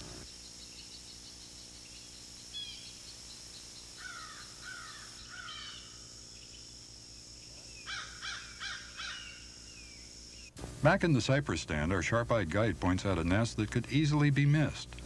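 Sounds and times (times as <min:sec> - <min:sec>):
fast ticking insect chirp: 0:00.0 - 0:14.9
high insect drone: 0:00.0 - 0:15.0
loud bird calls: 0:00.1 - 0:06.8, 0:07.4 - 0:10.6
bird calling: 0:04.0 - 0:06.7, 0:07.5 - 0:10.6.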